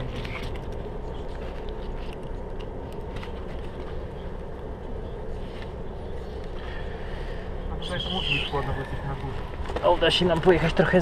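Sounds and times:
car road and engine rumble: 0.0s - 11.0s.

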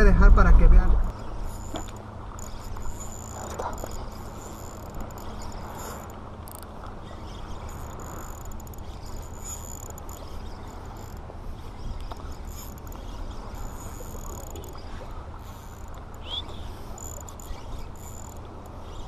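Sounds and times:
low rumble: 0.0s - 4.4s
fishing reel whirring: 1.0s - 19.0s.

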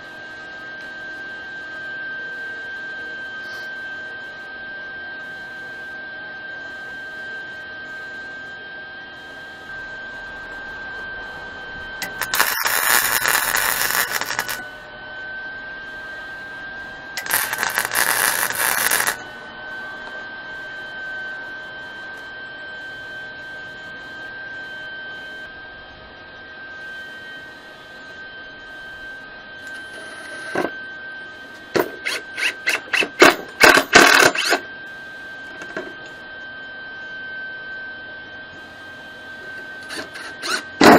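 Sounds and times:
high-pitched whine: 0.0s - 40.9s
cordless drill bursts: 12.0s - 14.6s, 17.2s - 19.2s, 31.8s - 34.6s, 39.8s - 40.9s
welder arc crackling: 12.0s - 14.7s, 17.2s - 19.2s, 29.7s - 30.6s, 31.6s - 34.6s, 39.8s - 40.9s.

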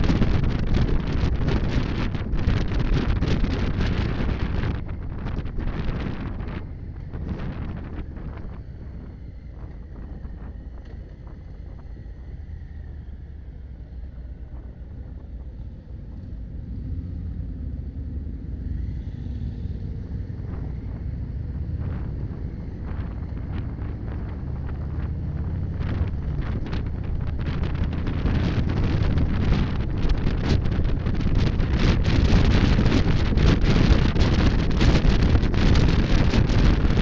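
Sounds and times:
wind rumble on microphone: 0.0s - 37.0s
motorcycle engine running: 19.1s - 37.0s.

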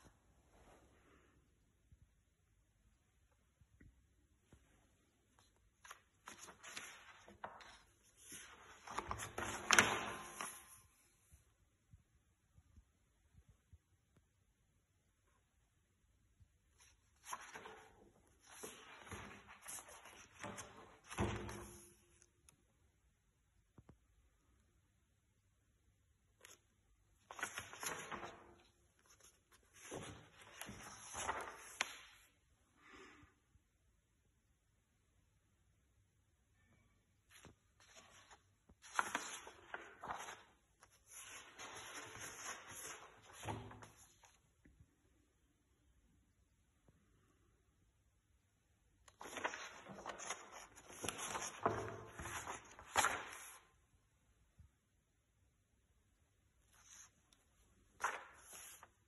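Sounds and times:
paper pages turning: 5.3s - 11.3s, 16.8s - 22.3s, 26.4s - 32.3s, 37.3s - 44.4s, 49.0s - 53.8s, 56.6s - 59.0s
paper sheets clicking: 49.1s - 53.6s.

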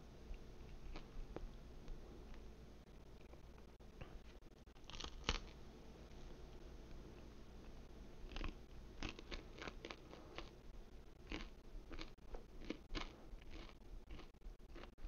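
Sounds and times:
person chewing crunchy food: 0.6s - 1.4s, 4.8s - 5.6s, 7.1s - 15.0s.

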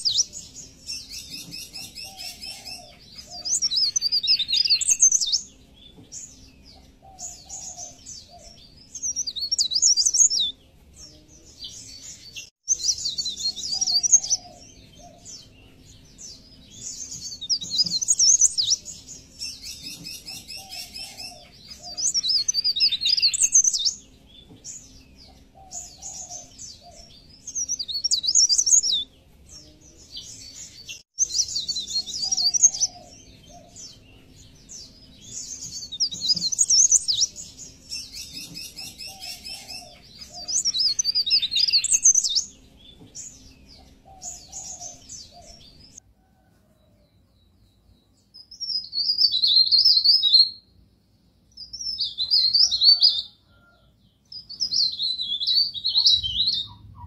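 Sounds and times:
songbird twittering and trilling: 0.0s - 46.0s, 47.2s - 50.8s, 51.5s - 57.0s.

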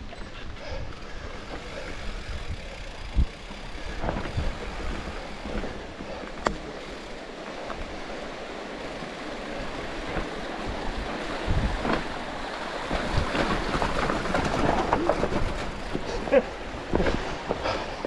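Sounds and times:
tyre noise on dirt: 0.0s - 8.1s
bike knocking and rattling: 0.0s - 18.0s.

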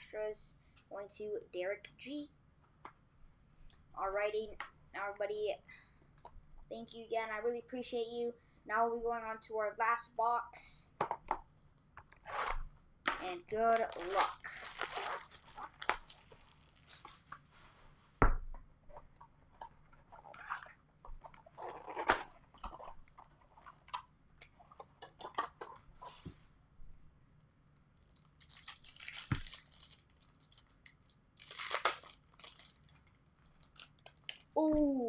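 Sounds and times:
wrapping tearing and crinkling: 11.6s - 12.6s, 13.5s - 17.5s, 19.9s - 24.1s, 27.6s - 34.6s.

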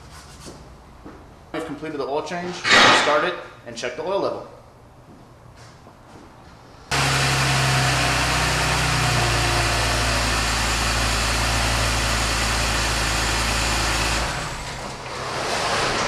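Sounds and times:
car engine idling: 6.9s - 14.8s.

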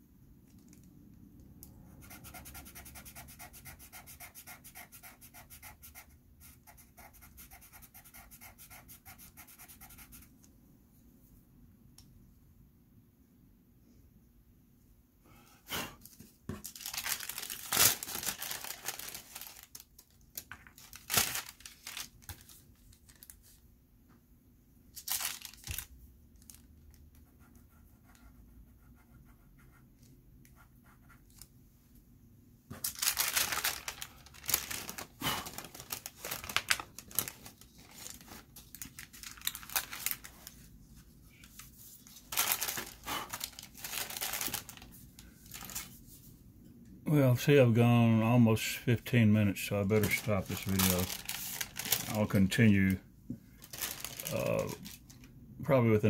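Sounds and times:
tissue paper rustling and crinkling: 16.6s - 23.6s, 25.0s - 26.6s, 32.8s - 46.2s, 50.0s - 52.4s, 53.6s - 55.1s.

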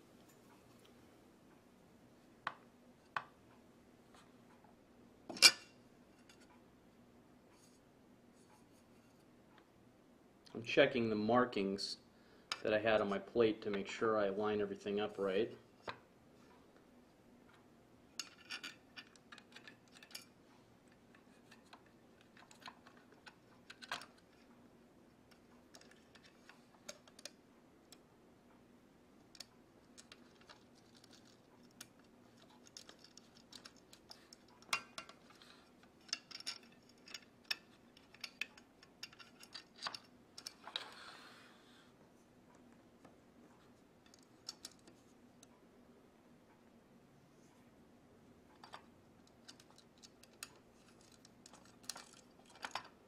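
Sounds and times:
small metal parts clicking: 18.2s - 20.4s, 21.1s - 24.5s, 25.3s - 27.4s, 29.3s - 40.8s, 44.0s - 45.0s, 48.5s - 53.0s.

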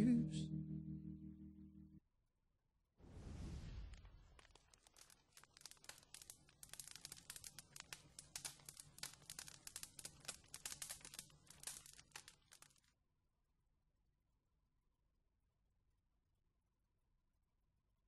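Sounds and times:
faint crackling and crinkling: 3.8s - 13.0s.

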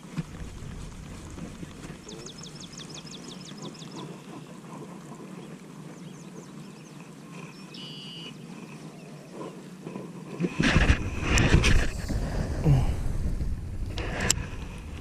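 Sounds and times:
loud rumbling rush near microphone: 10.6s - 15.0s.

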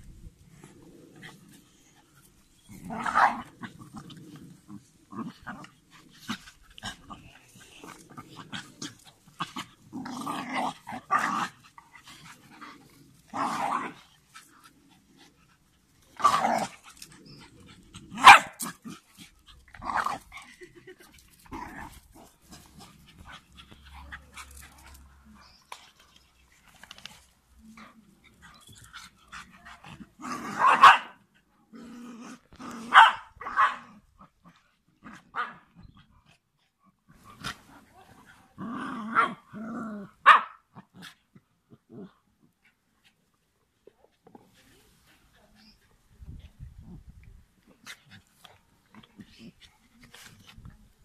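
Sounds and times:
dogs growling in play: 0.3s - 50.7s
dogs barking: 18.2s - 18.6s, 30.6s - 31.1s, 32.9s - 33.8s.

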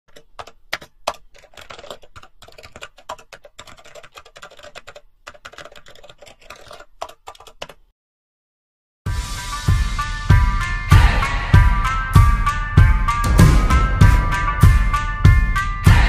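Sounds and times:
computer keyboard typing: 0.1s - 7.9s.

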